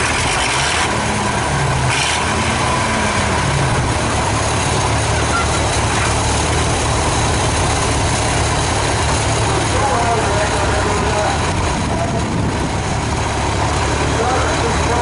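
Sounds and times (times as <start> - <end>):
tractor diesel engines running: 0.0 - 15.0.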